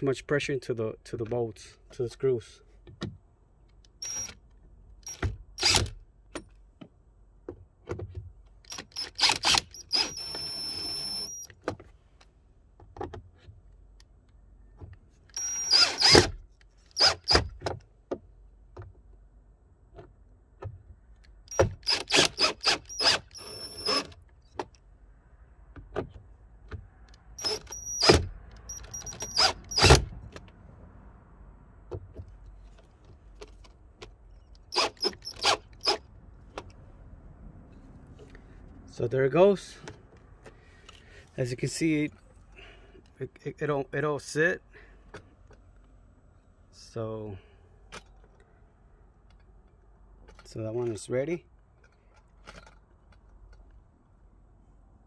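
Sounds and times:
drill motor whine: 4.0s - 4.3s, 8.8s - 11.5s, 15.4s - 16.3s, 21.6s - 24.0s
drill clutch clicking: 8.6s - 11.5s, 15.3s - 17.4s, 21.5s - 24.2s, 34.5s - 36.0s.

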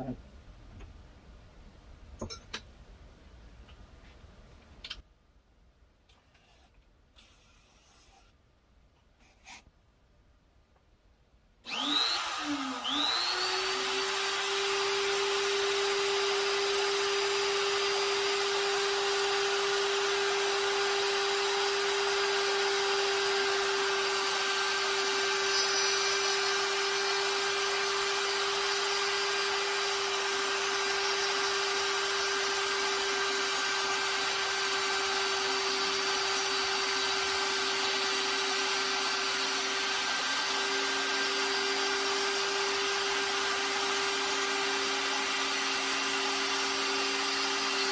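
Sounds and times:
die grinder grinding plastic: 11.7s - 14.8s.

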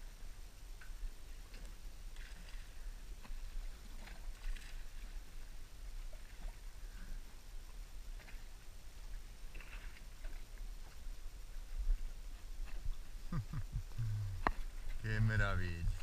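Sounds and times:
low steady rumble: 0.0s - 16.0s
small waves lapping against boat: 0.0s - 16.0s
light splashes: 1.4s - 7.1s.

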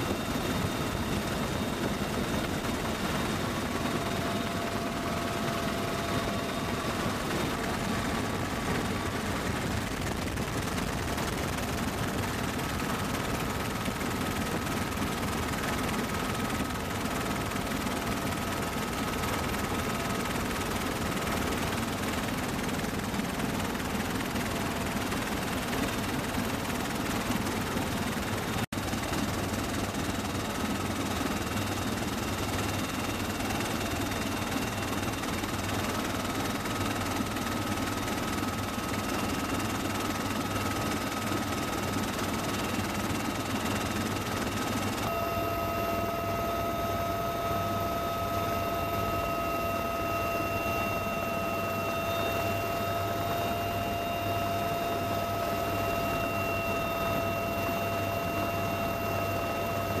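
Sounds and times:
helicopter drone from inside cabin: 0.0s - 60.0s
thin steady whining tones: 0.0s - 60.0s
lower whine tone: 44.9s - 60.0s.

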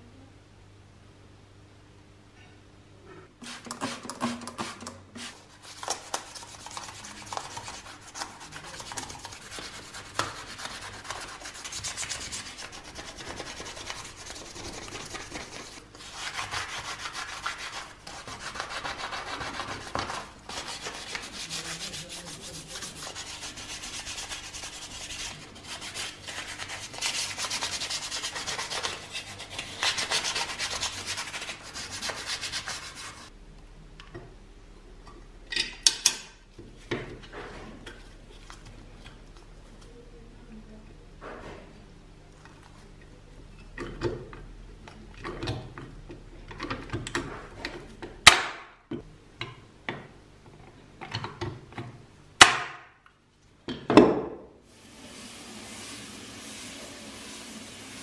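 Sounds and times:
sandpaper rubbing on metal: 5.2s - 33.3s.

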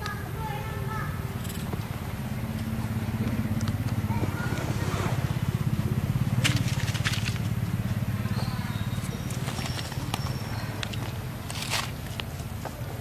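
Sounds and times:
monkey crunching fruit: 6.3s - 7.9s, 8.9s - 12.6s.

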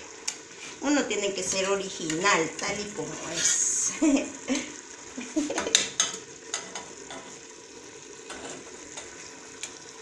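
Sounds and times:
stovetop hiss: 0.0s - 10.0s
metal cookware clinking: 5.6s - 7.4s.

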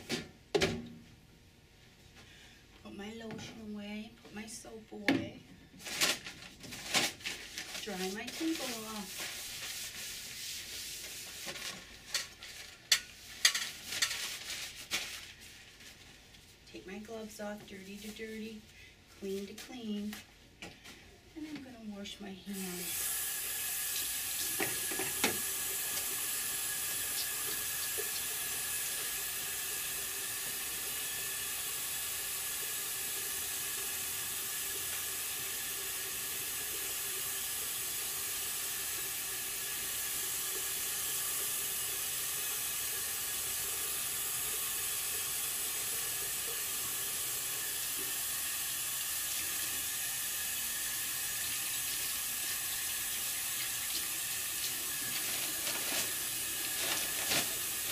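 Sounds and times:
hands washing under water: 7.4s - 15.6s
faucet running into sink: 22.8s - 57.9s.

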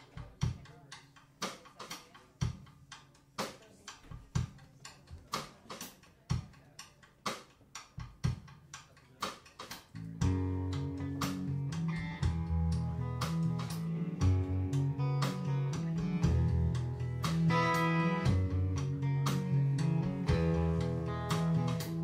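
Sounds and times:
drum kit beat: 0.0s - 22.0s
bass guitar: 9.9s - 22.0s
electric guitars: 10.0s - 22.0s.

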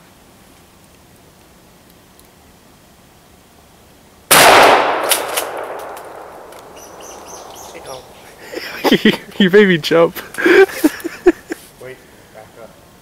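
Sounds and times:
shotgun shot: 4.3s - 6.8s.

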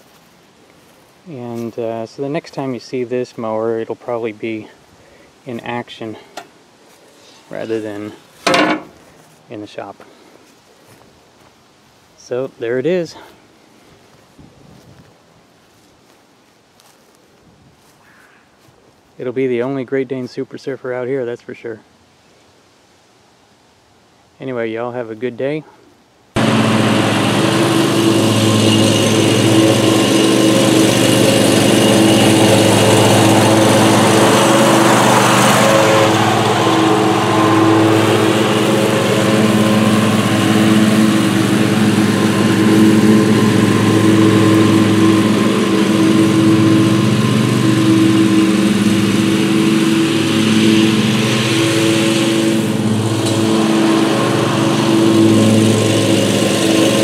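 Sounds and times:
lawn mower engine running: 7.5s - 9.4s, 26.4s - 57.0s.

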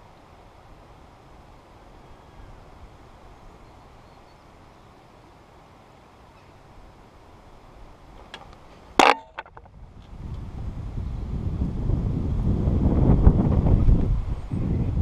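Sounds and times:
wind noise on microphone: 8.2s - 15.0s.

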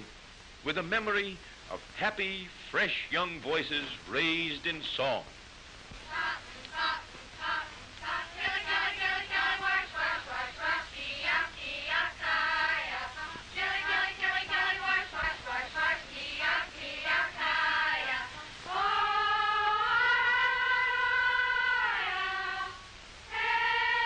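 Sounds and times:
young voices singing together: 5.9s - 24.0s.

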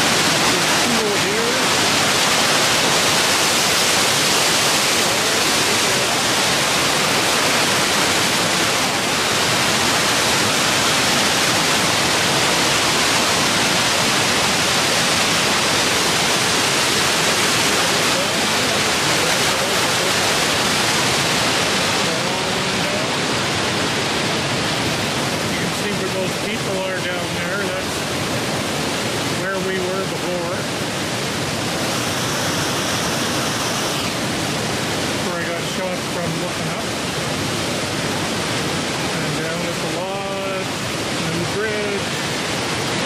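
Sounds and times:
waterfall rushing: 0.0s - 43.0s.

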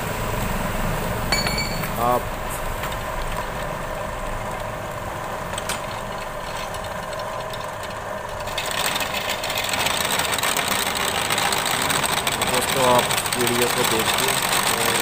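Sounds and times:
drill press motor running: 0.1s - 15.0s.

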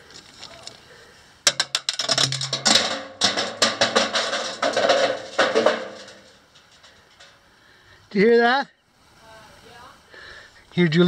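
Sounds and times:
rapid knocking in metal chute: 1.5s - 7.3s.

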